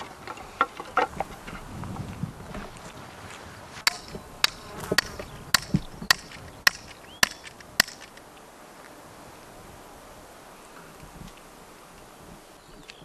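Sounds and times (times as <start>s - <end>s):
ringing hand tool strikes: 3.8s - 8.1s.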